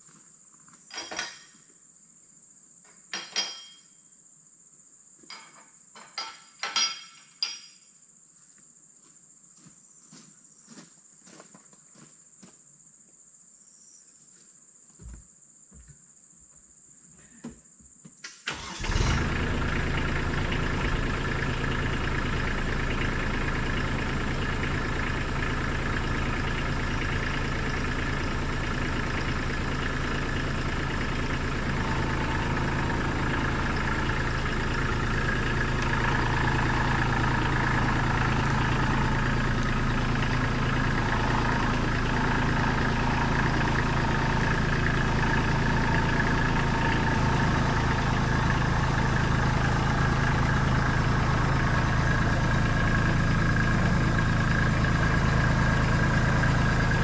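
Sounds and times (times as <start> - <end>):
tractor diesel engine running: 18.5 - 57.0.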